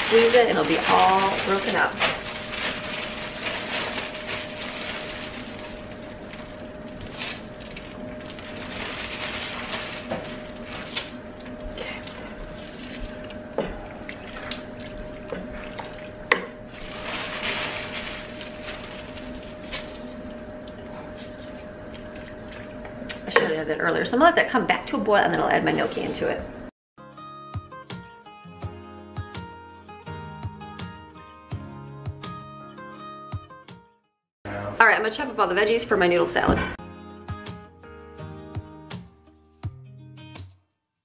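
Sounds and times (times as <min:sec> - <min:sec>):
plastic bag crinkling: 0:00.0 - 0:11.3, 0:16.7 - 0:20.2
steady hum: 0:00.0 - 0:26.7
liquid sloshing: 0:11.8 - 0:19.7, 0:21.4 - 0:23.0.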